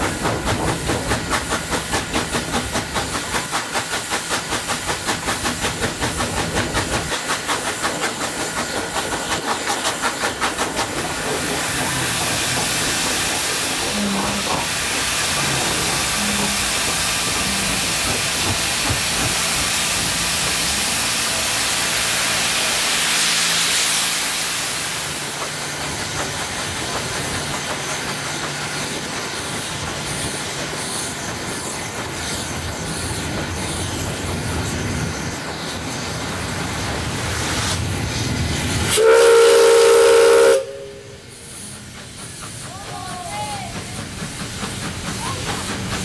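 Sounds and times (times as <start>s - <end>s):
steam locomotive hissing: 0.0s - 46.0s
steam whistle blast: 15.4s - 17.9s, 38.9s - 41.4s.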